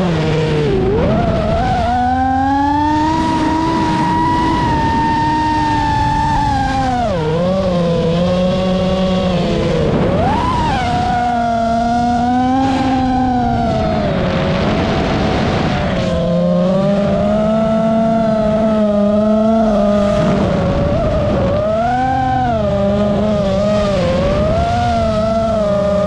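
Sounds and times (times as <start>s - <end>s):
quadcopter motors whining: 0.0s - 26.0s.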